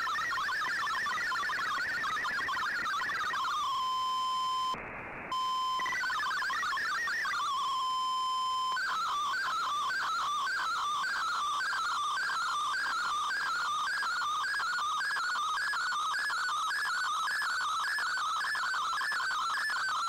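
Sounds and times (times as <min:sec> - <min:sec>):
stepping warbly data tones: 0:00.0 - 0:04.8.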